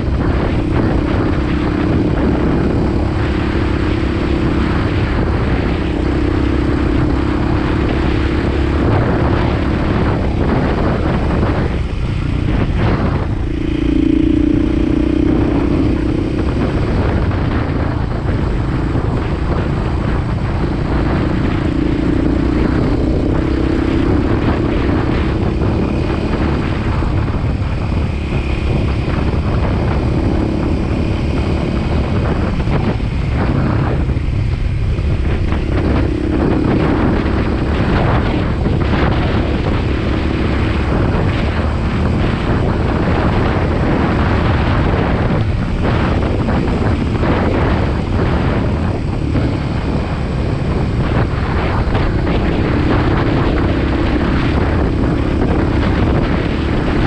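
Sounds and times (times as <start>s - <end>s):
motorcycle engine running: 0.0s - 57.0s
wind buffeting microphone: 0.0s - 57.0s.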